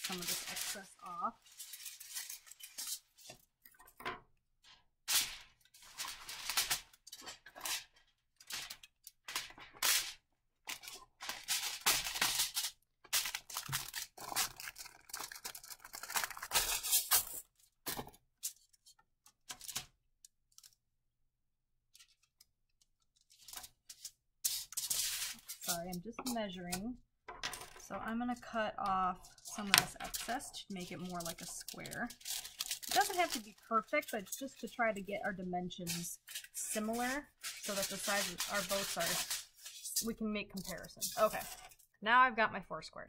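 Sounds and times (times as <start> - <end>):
aluminium foil crinkling and tearing: 0.0 - 3.4, 5.1 - 17.8, 18.4 - 19.9, 20.5 - 20.8, 22.0 - 22.3, 23.0 - 26.4, 29.1 - 41.9.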